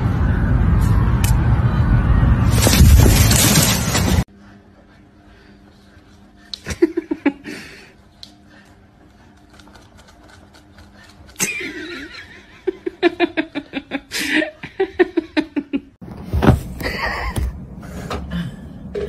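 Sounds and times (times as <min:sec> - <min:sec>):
person laughing: 0:06.6 - 0:07.8, 0:11.4 - 0:15.9.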